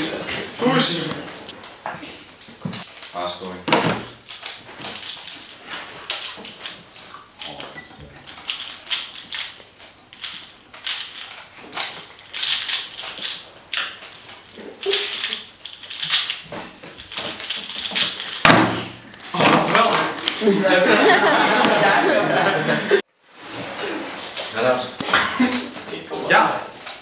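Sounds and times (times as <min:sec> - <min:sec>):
speed cube clicking: 0:08.2 - 0:18.4.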